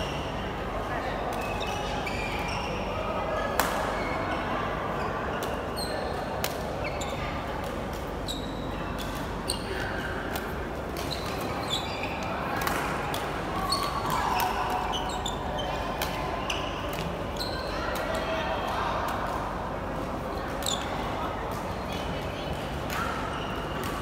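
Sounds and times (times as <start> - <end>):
murmur of voices: 0.0 - 24.0
shoes squeaking on court: 6.8 - 7.2, 11.0 - 12.4, 13.6 - 17.7.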